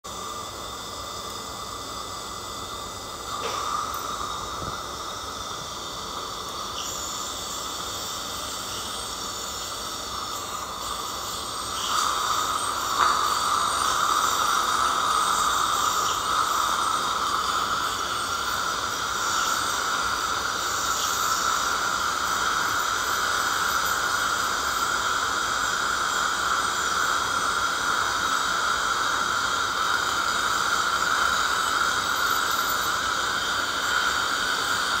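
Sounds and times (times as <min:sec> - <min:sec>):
water spray hissing: 0:09.3 - 0:25.2.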